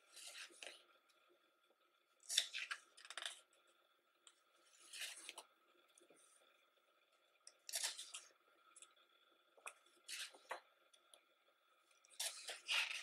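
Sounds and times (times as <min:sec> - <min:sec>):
book pages rustling: 0:00.1 - 0:00.8, 0:04.7 - 0:05.4, 0:10.1 - 0:10.6.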